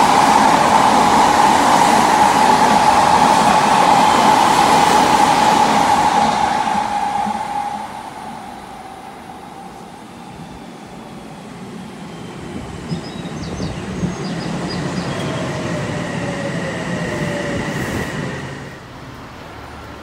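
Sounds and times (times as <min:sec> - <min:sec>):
train rumble and wheel noise: 0:00.0 - 0:20.0.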